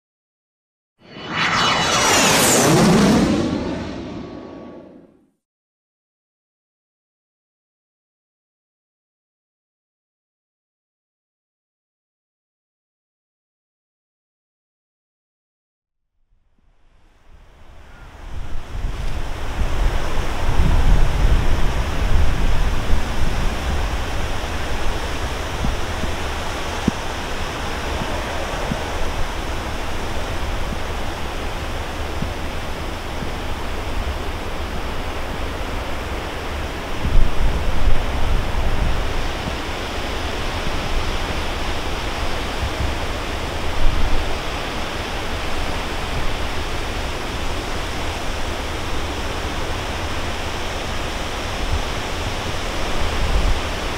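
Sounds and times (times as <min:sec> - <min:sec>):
gusty wind buffeting microphone: 0:17.3 - 0:44.6.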